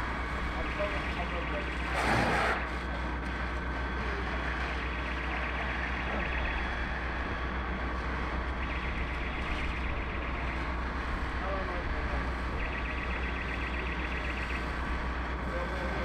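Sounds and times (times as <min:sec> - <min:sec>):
fire engine pump rumbling: 0:00.0 - 0:16.0.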